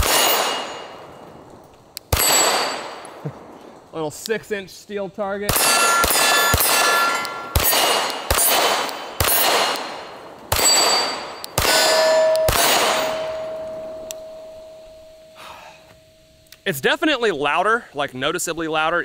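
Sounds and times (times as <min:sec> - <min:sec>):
pistol shots: 0:00.0 - 0:01.1, 0:02.0 - 0:03.2, 0:05.4 - 0:14.0
steel plate ringing: 0:05.5 - 0:09.6, 0:10.5 - 0:16.4.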